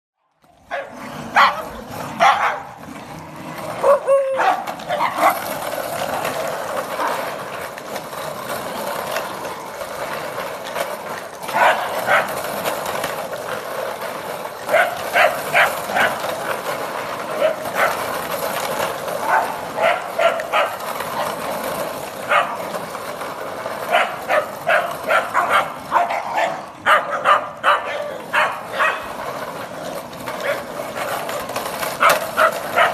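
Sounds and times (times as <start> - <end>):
small dogs barking and yapping: 0.6 - 2.8, 3.7 - 5.7, 6.9 - 7.4, 11.4 - 12.5, 14.6 - 16.4, 17.2 - 18.2, 19.1 - 21.5, 22.2 - 22.8, 23.8 - 29.2, 30.3 - 32.9.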